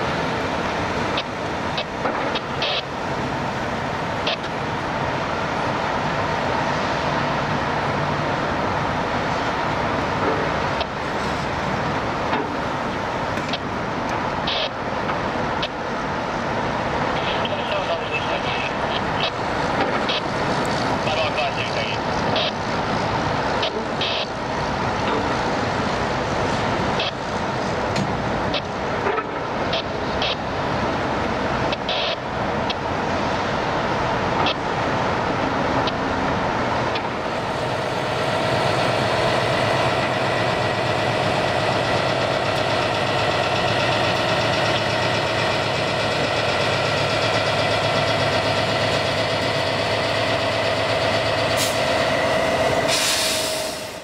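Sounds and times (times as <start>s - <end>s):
heavy diesel engine: 0.0s - 54.0s
locomotive engine hum with whine: 0.0s - 54.0s.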